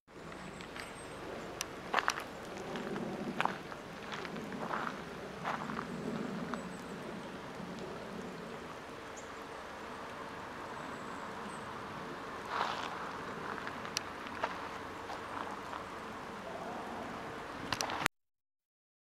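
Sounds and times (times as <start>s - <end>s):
creek flowing: 0.1s - 18.1s
scuffing footstep: 14.4s - 15.8s.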